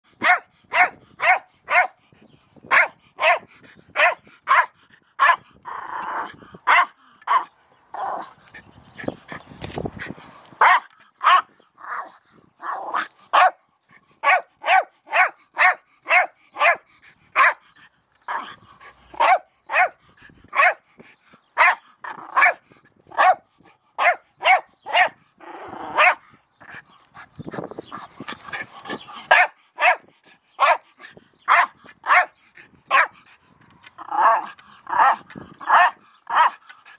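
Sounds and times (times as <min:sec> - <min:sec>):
dog barking sharply: 0:00.2 - 0:01.9, 0:13.4 - 0:13.6, 0:23.2 - 0:23.4.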